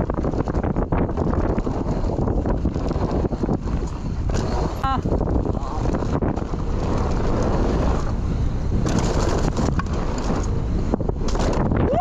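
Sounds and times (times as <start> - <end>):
bike clattering over bumps: 0.0 - 12.0
tyres rolling over dry dirt: 0.0 - 12.0
wind buffeting microphone: 0.0 - 12.0.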